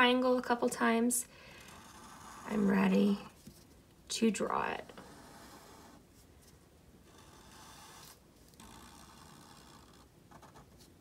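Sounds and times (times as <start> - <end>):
marker scratching on paper: 1.7 - 3.6, 4.8 - 6.0, 7.1 - 10.9.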